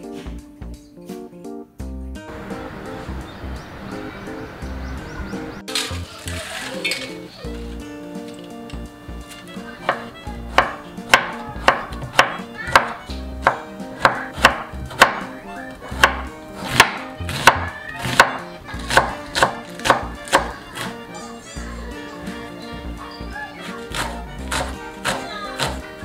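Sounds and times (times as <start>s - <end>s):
knife chopping on wooden board: 9.8s - 21.0s, 23.7s - 25.9s.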